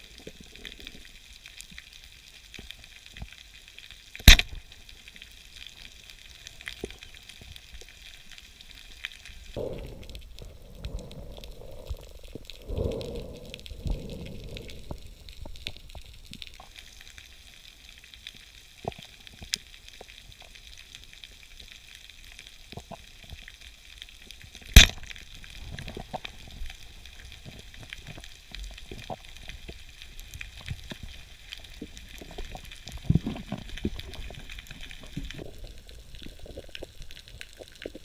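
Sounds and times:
underwater clicks and bubbling: 0:00.0 - 0:38.0
underwater crackling hiss: 0:00.0 - 0:38.0
speargun firing crack: 0:04.3 - 0:04.6, 0:24.8 - 0:25.0.

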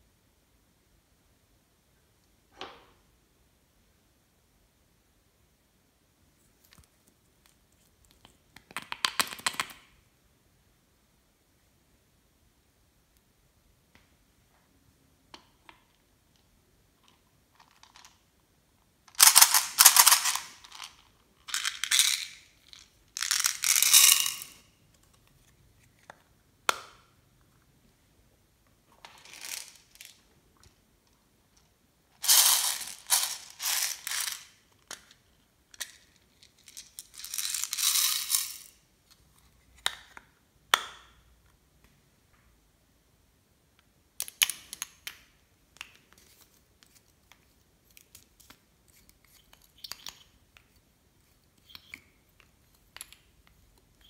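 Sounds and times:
plastic beads rattling: 0:19.1 - 0:24.7, 0:29.0 - 0:30.3, 0:32.2 - 0:35.0, 0:35.7 - 0:38.8.

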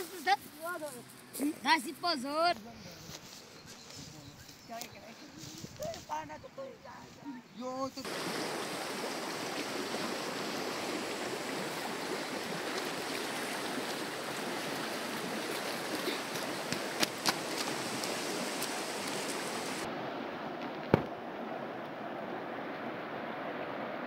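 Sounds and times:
fast-flowing river rushing: 0:08.0 - 0:24.0.

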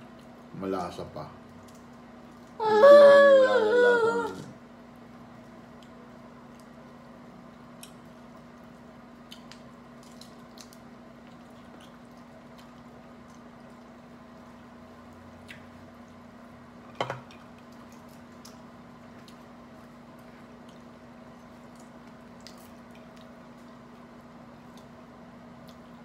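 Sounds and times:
low room hum: 0:00.0 - 0:26.0
small clicks and squishes: 0:01.5 - 0:02.6, 0:07.8 - 0:14.0, 0:17.2 - 0:24.0
seafood shells cracking: 0:09.4 - 0:12.8.

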